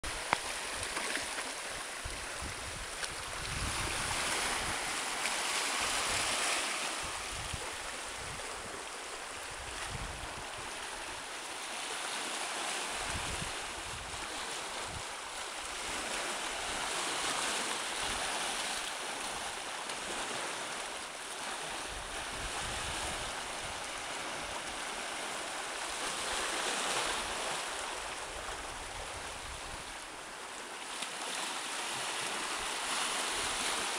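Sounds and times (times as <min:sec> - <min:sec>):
small waves lapping on boulders: 0:00.1 - 0:33.9
wind buffeting microphone: 0:02.0 - 0:05.0, 0:07.0 - 0:08.7, 0:09.4 - 0:10.8.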